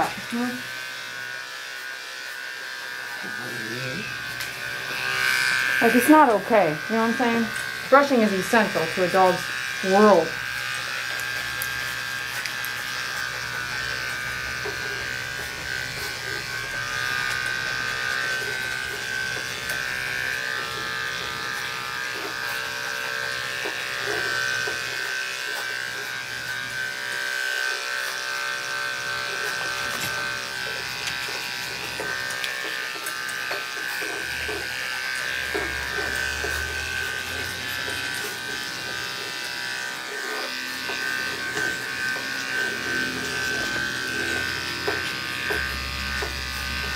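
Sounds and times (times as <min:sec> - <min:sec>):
pet clipper buzzing: 0:00.0 - 0:46.9.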